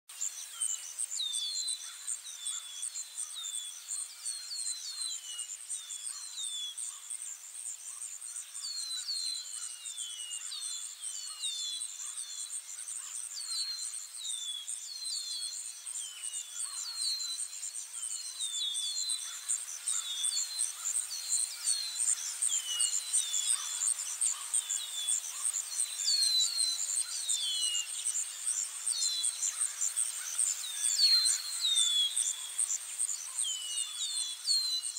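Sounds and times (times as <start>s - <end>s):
high insect trill: 19.2s - 34.4s.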